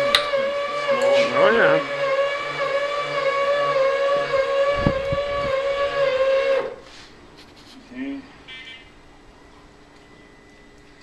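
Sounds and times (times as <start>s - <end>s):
electric lift drive whining: 0.0s - 6.9s.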